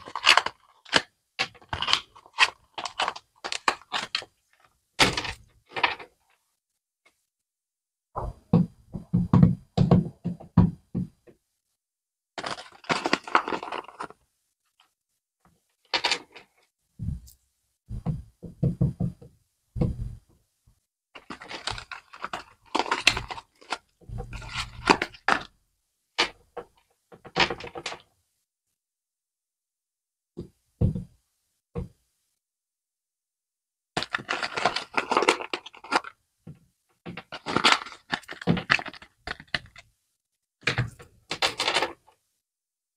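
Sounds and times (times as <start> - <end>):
plastic packaging crinkling: 0.0 - 6.0, 12.4 - 14.2, 21.2 - 25.5, 34.0 - 36.2, 37.1 - 39.8
knocks and thunks: 8.2 - 11.3, 17.9 - 20.3, 30.4 - 31.2.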